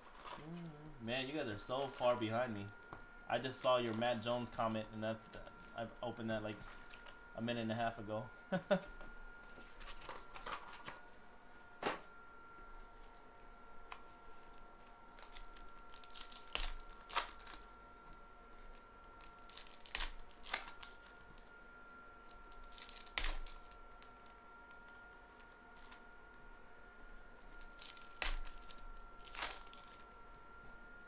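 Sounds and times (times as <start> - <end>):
foil wrappers tearing and crinkling: 9.7 - 11.0, 15.1 - 17.7, 18.6 - 21.2, 22.2 - 26.1, 27.4 - 30.1.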